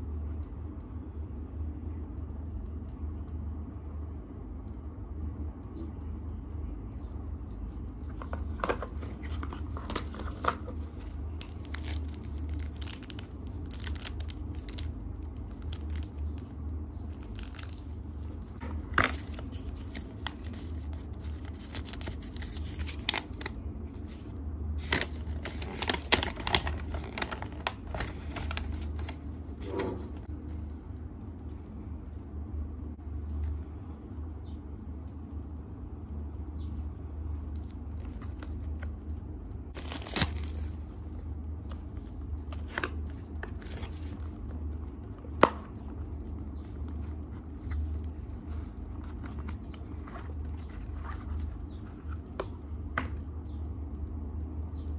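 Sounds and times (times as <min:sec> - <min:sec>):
steady low hum: 0:00.0 - 0:54.9
packaging crinkling and rustling: 0:08.0 - 0:30.6, 0:37.5 - 0:39.1, 0:39.7 - 0:44.6, 0:46.8 - 0:52.5.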